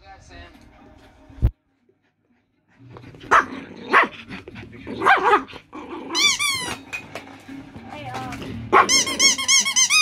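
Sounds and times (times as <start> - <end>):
dog growling: 2.8 - 6.5
dog barking: 3.3 - 4.2, 5.0 - 5.6, 8.7 - 9.2.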